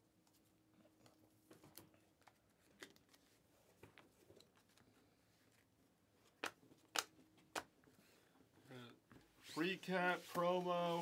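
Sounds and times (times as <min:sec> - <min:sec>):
cards and plastic sleeve rustling: 0:09.5 - 0:11.0.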